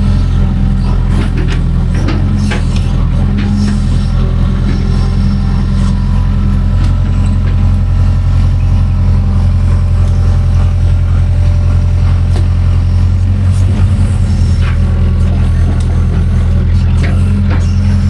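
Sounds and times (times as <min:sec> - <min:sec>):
excavator diesel engine running: 0:00.0 - 0:18.0.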